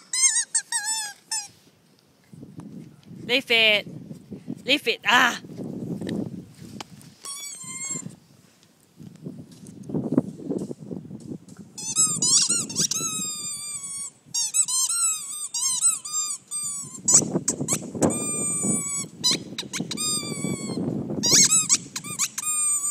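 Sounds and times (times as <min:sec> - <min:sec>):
squeaky toy squeaking: 0:00.0 - 0:01.6, 0:07.2 - 0:08.1, 0:11.8 - 0:22.9
low scuffing noise: 0:05.4 - 0:11.7.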